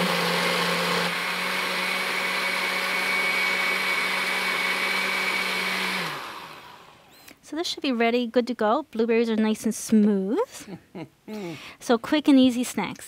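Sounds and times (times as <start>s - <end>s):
blender running: 0.0s - 7.2s.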